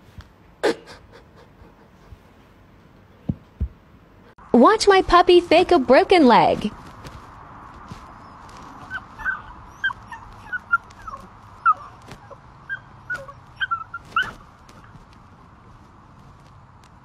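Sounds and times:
puppy whimpering: 8.2 - 14.4.

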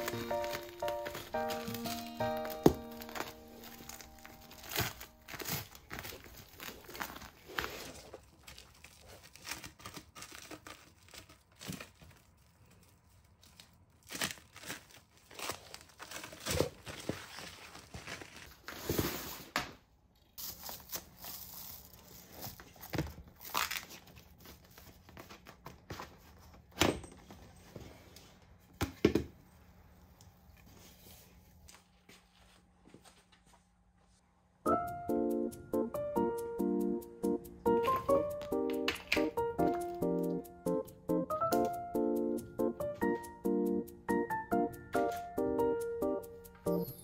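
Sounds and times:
packaging crinkling and tearing: 0.0 - 19.4, 20.4 - 26.0.

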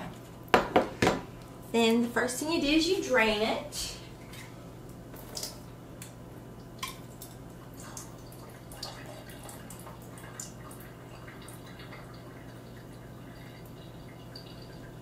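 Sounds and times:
liquid dripping and trickling into sink: 6.6 - 15.0.

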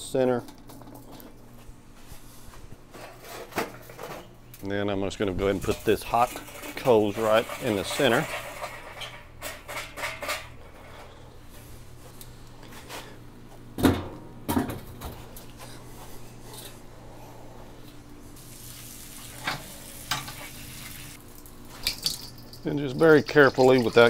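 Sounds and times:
charcoal tumbling and clinking: 5.2 - 10.6.

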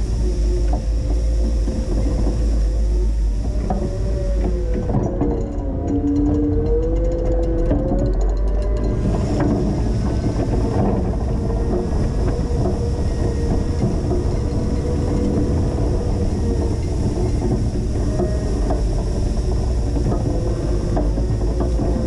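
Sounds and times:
forklift engine running: 8.9 - 22.0.

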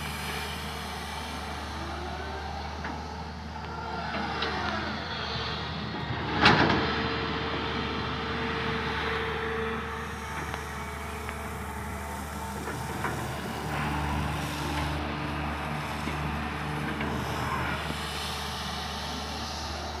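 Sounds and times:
excavator diesel engine running: 0.0 - 20.0
held whine: 0.0 - 20.0.

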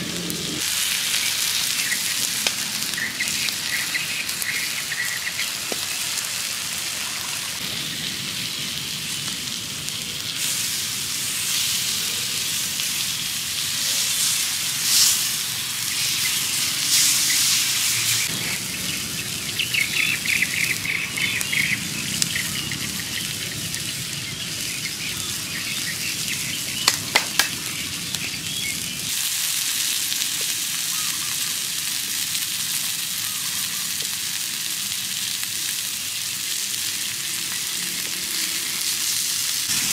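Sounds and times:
steaks sizzling on hot stone: 0.5 - 39.9
birds chirping: 1.1 - 6.1, 15.4 - 29.1
sharp clicks: 26.8 - 27.6.

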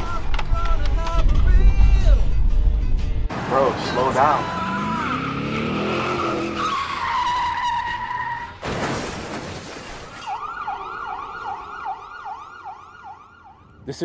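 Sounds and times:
engine revving: 3.3 - 8.0
tyres screeching: 3.8 - 9.1
crash impact: 8.6 - 10.2
emergency siren: 10.2 - 14.0.

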